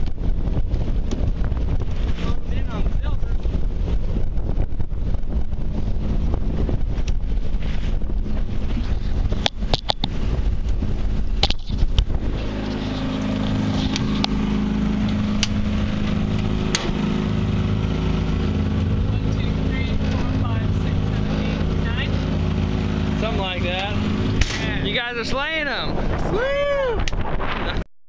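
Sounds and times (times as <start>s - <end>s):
boat engine running: 0.0s - 27.8s
wind noise on microphone: 0.0s - 27.9s
sharp clicks and knocks: 9.3s - 10.8s, 15.0s - 17.0s.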